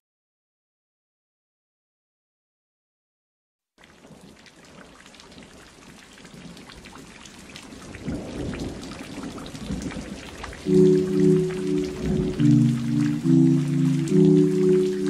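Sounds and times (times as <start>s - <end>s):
rain falling: 3.8s - 15.0s
thunder rumbling: 9.7s - 15.0s.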